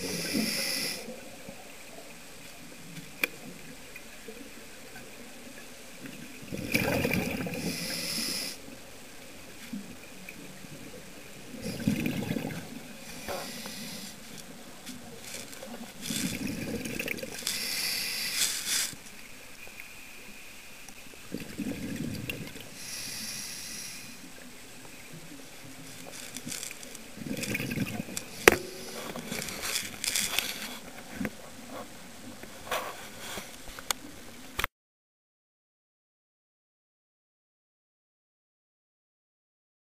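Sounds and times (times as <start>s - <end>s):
regulator inhale hiss: 0.0s - 1.2s, 7.5s - 8.6s, 13.0s - 14.4s, 17.4s - 19.0s, 22.7s - 24.4s, 28.3s - 30.9s
exhale bubbling gurgle: 3.4s - 8.7s, 9.8s - 18.3s, 21.2s - 23.5s, 24.3s - 30.0s.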